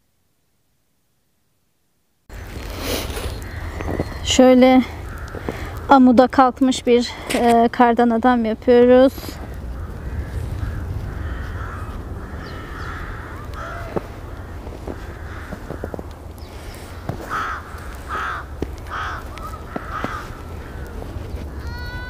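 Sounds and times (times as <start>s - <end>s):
snow crunching in hands: 2.4s - 5.7s, 12.6s - 22.0s
crows cawing: 3.3s - 6.0s, 9.2s - 22.0s
low steady rumble: 8.3s - 21.6s.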